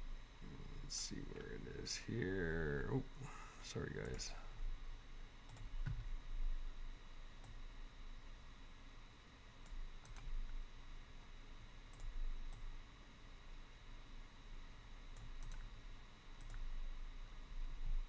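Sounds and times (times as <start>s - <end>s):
faint low hum: 0.0s - 18.0s
computer mouse clicks: 5.5s - 6.1s, 9.6s - 10.6s, 11.9s - 12.7s, 15.1s - 15.7s, 16.4s - 16.7s.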